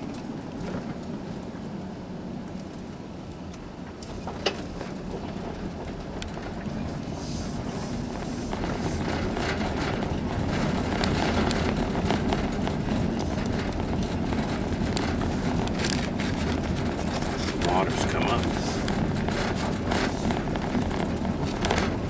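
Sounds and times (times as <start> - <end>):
engine and tyre noise: 0.0 - 22.0
rattles and clicks: 8.0 - 22.0.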